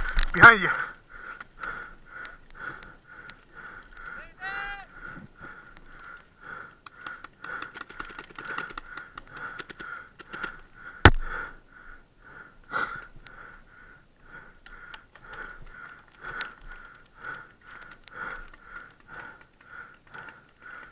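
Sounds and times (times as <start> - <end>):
paintball gun clicks: 6.6 - 11.3, 14.6 - 20.9.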